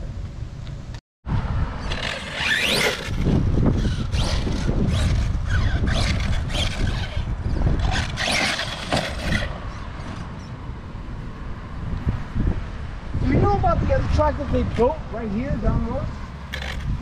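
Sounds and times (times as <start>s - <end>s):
radio-controlled car motors whining: 1.8s - 9.5s.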